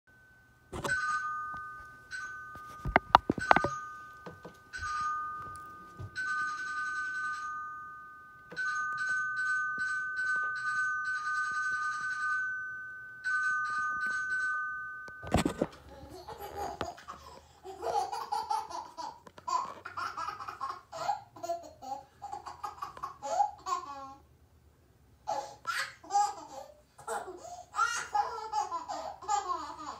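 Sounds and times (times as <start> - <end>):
two-tone electronic doorbell chime: 0.1 - 15.7
baby laughing: 15.9 - 24.2, 25.3 - 29.9.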